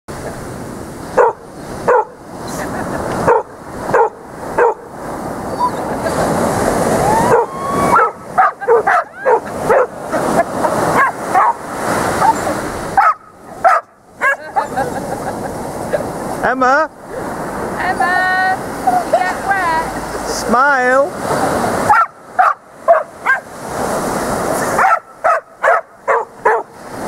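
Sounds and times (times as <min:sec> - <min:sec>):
waves breaking in shallows: 0:00.1 - 0:27.0
dog barking: 0:01.2 - 0:02.2, 0:03.2 - 0:04.9, 0:07.2 - 0:11.6, 0:13.0 - 0:14.8, 0:21.8 - 0:23.5, 0:24.7 - 0:26.8.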